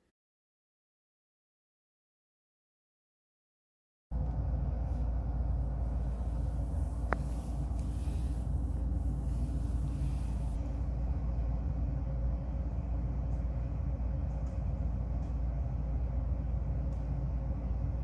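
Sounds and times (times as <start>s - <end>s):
steady low rumble: 4.1s - 18.0s.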